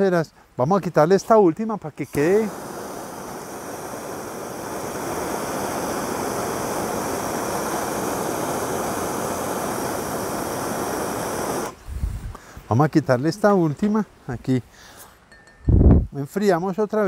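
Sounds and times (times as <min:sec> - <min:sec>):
gas torch hissing: 0:02.0 - 0:12.4.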